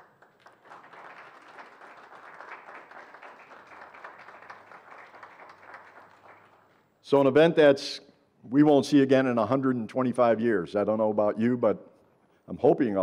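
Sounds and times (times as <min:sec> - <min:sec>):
light applause: 0:00.0 - 0:06.9.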